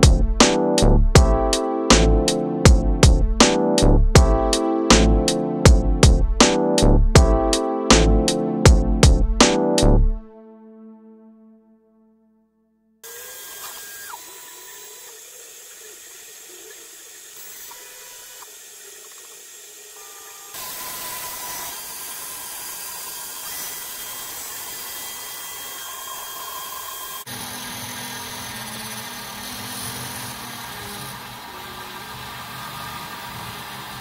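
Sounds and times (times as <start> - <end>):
stepper motor tones: 13.0 - 23.5
spindle whine and hiss: 13.1 - 21.7.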